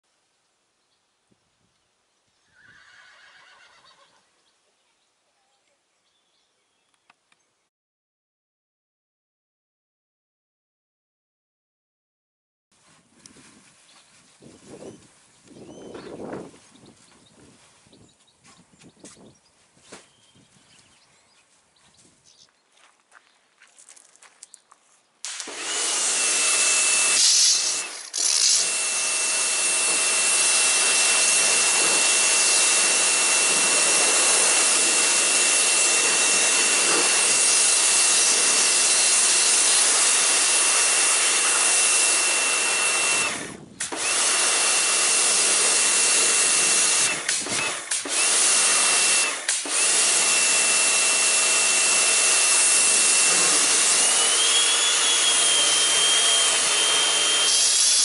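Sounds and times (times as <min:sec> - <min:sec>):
pressure washer spraying: 0:25.3 - 0:43.1, 0:44.2 - 0:55.1.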